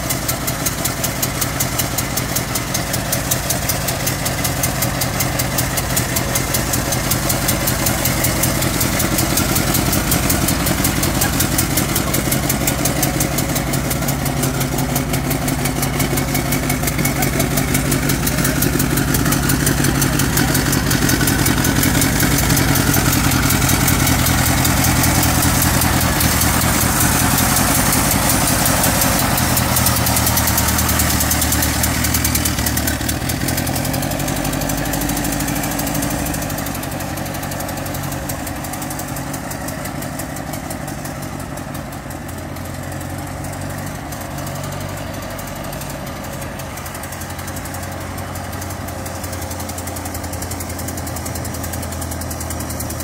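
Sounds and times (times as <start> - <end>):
old car engine driving away: 0.0 - 53.0.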